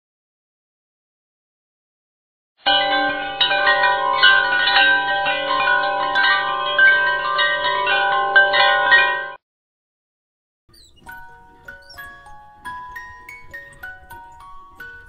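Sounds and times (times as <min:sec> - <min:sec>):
chime-like bell music: 0:02.6 - 0:09.4, 0:10.8 - 0:15.0.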